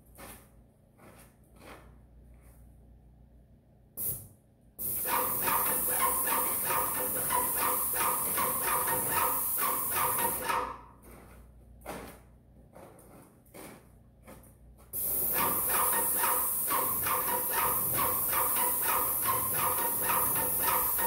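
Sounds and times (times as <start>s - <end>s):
paint spray gun hissing: 4.8s - 10.6s, 15.0s - 21.0s.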